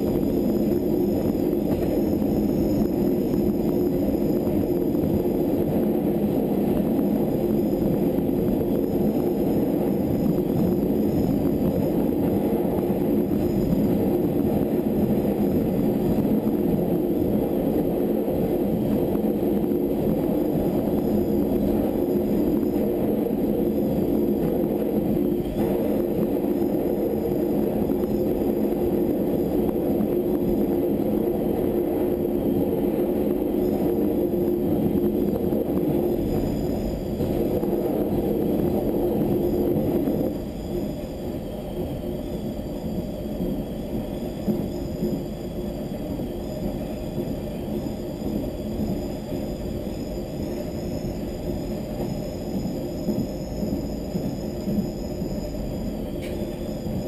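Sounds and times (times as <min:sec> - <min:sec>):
electric train rumble and drone: 0:00.0 - 0:57.0.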